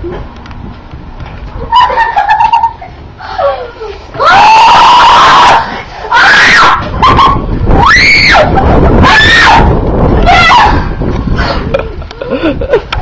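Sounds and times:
child screaming: 4.2s - 10.9s.

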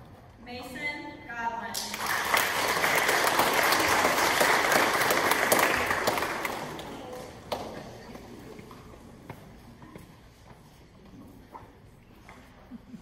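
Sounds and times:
audience applauding: 1.8s - 8.0s.

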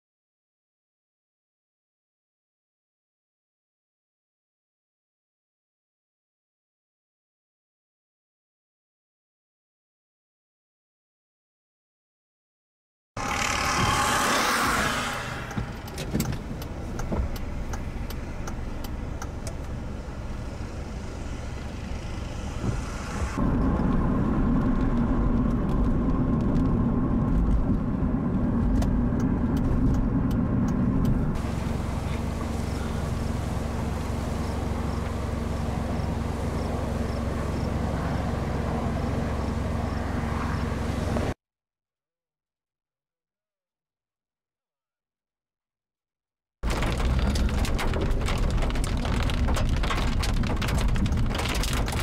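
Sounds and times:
car engine and road noise: 13.2s - 41.4s, 46.6s - 52.0s
deep rumble: 13.2s - 41.4s, 46.6s - 52.0s.

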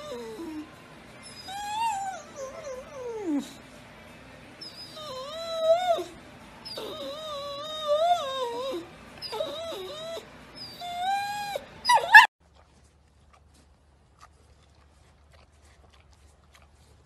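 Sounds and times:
dog howling and whining: 0.0s - 3.6s, 4.6s - 12.3s.

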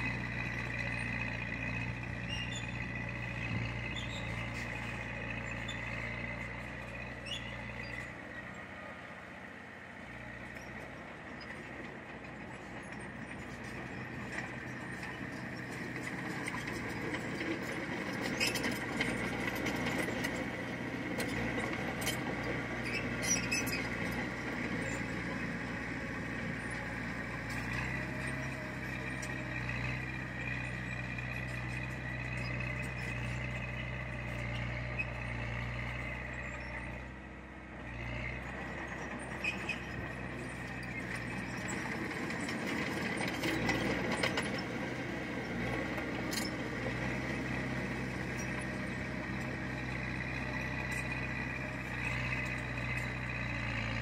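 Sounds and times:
bulldozer diesel engine running: 0.0s - 54.0s.

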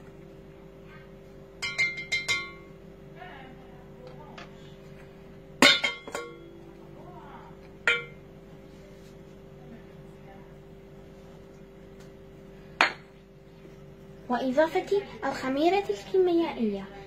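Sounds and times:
wire whisk clinking on metal bowl: 1.6s - 2.6s.

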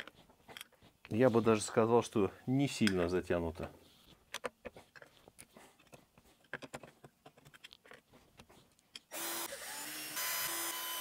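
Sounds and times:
cordless drill whirring: 9.1s - 11.0s.

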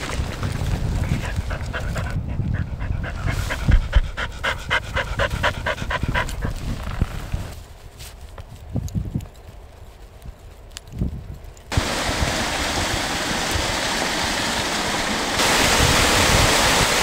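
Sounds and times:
dog panting: 0.9s - 7.2s.

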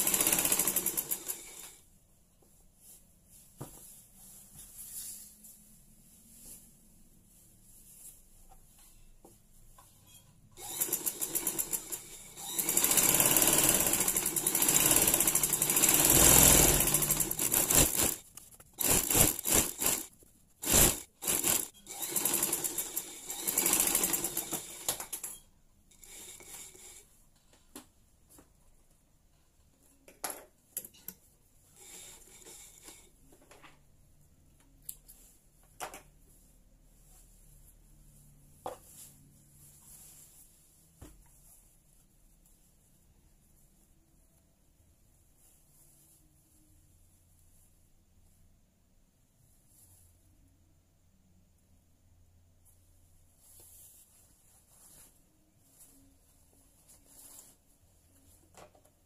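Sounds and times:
sewing machine stitching: 0.0s - 1.8s, 10.6s - 18.2s, 18.8s - 27.0s, 31.8s - 33.1s.

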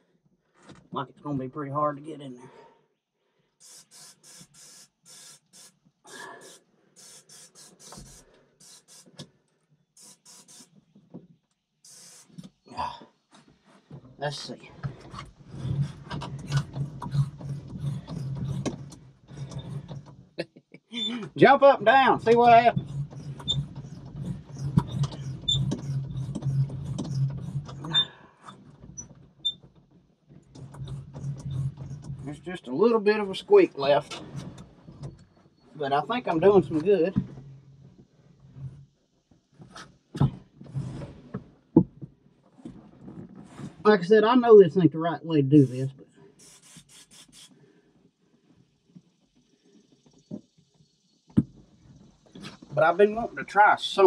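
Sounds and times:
aerosol spray hissing: 3.6s - 9.2s, 10.0s - 10.7s, 11.9s - 12.4s, 46.4s - 47.6s
seat squeaking: 3.7s - 9.2s, 13.3s - 44.0s, 51.3s - 54.0s.

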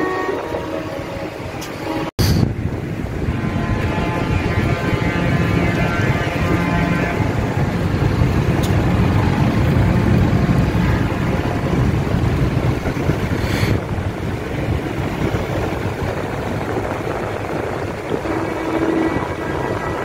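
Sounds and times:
diesel tractor engines running: 1.6s - 20.0s.

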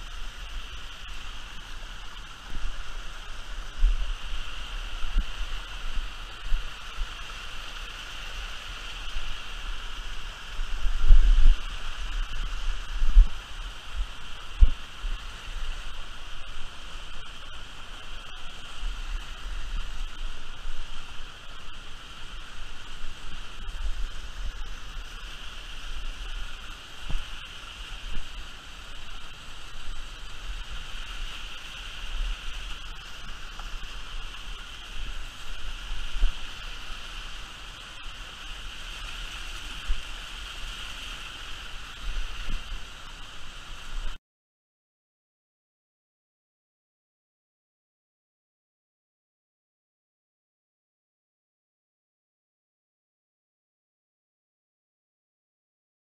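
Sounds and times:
river water rushing over cascades: 0.0s - 44.2s
low rumbling on microphone: 10.4s - 21.8s.

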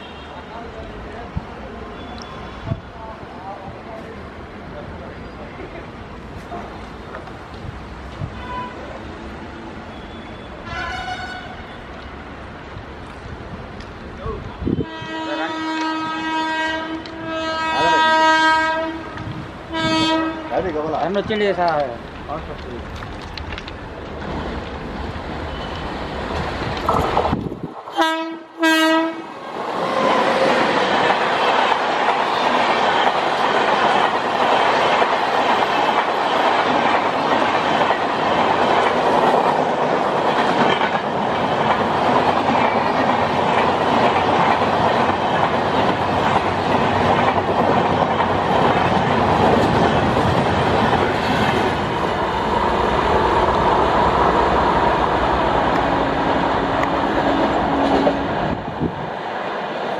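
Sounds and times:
train wheels rushing on rails: 0.0s - 59.9s
locomotive air horn blasts: 10.0s - 11.8s, 14.8s - 20.5s, 28.0s - 29.3s.

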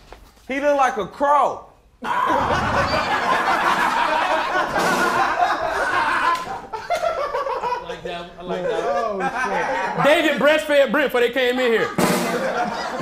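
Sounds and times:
men laughing loudly: 2.0s - 10.4s, 11.5s - 13.0s.

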